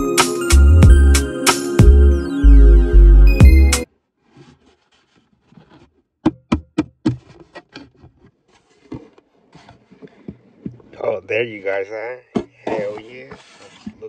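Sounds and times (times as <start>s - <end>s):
background music: 0.0s - 3.9s.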